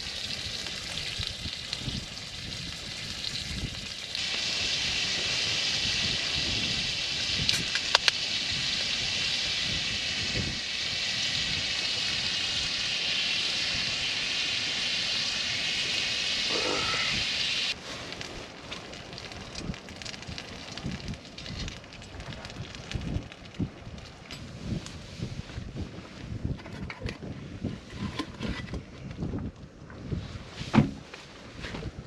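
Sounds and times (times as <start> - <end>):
steady high hiss: 3.9 - 17.8.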